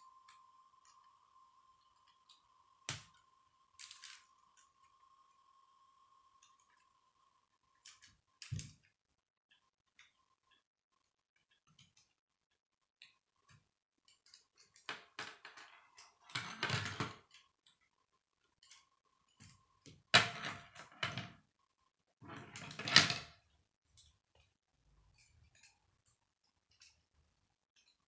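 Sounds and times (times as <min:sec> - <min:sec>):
plastic pieces clicking and rattling: 0:03.8 - 0:04.7.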